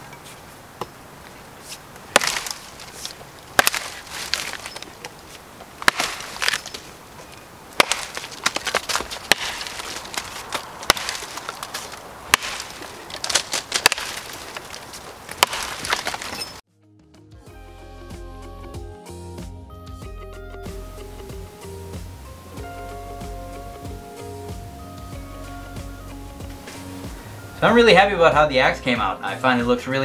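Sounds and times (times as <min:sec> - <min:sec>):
wood splintering: 0:01.9 - 0:16.6
axe chopping log: 0:02.1 - 0:06.9, 0:07.8 - 0:16.6
soft music: 0:16.7 - 0:30.0.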